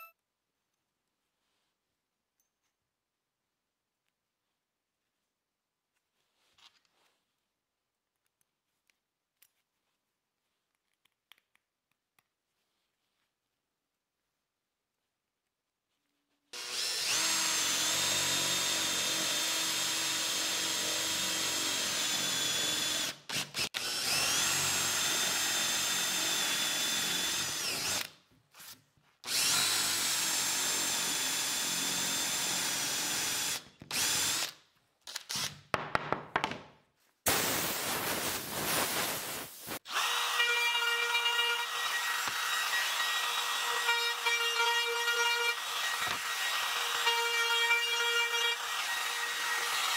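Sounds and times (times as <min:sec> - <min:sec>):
cordless drill whining: 0:16.6 - 0:28.2, 0:29.2 - 0:35.6, 0:39.8 - 0:49.9.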